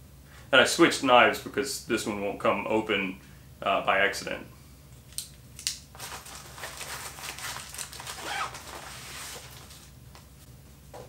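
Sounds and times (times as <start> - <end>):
fabric pack rustling and crinkling: 5.9 - 10.4.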